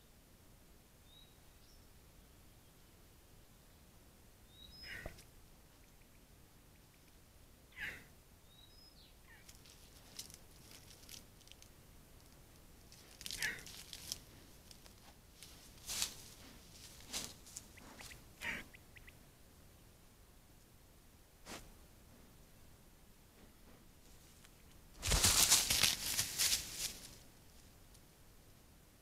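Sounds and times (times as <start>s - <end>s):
deer scuffing through wet grass: 9.4s - 18.2s, 24.0s - 27.7s.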